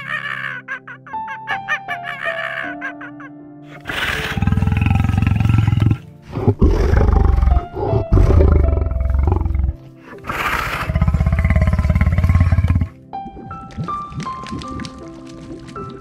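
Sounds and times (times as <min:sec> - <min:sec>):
background music: 0:00.0 - 0:16.0
big cat roaring: 0:03.8 - 0:12.9.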